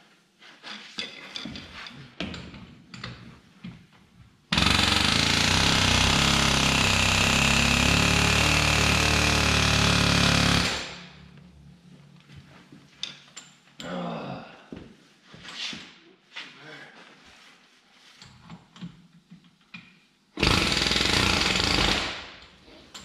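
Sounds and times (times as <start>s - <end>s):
pneumatic air hammer: 4.5s - 11.2s, 20.4s - 22.4s.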